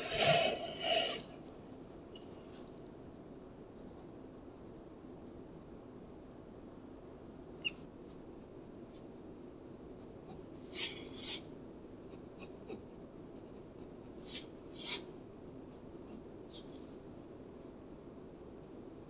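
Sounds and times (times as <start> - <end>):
pencil scratching on paper: 8.0 - 17.8.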